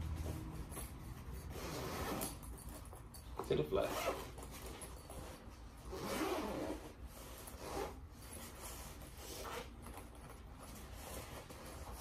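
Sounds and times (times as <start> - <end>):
fabric rubbing: 0.0 - 2.5, 3.8 - 12.0
zipper being pulled: 1.3 - 2.7, 3.8 - 12.0.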